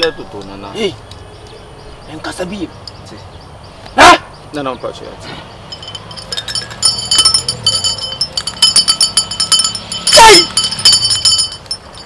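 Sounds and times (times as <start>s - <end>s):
small metal bell jingling: 5.6s - 12.0s.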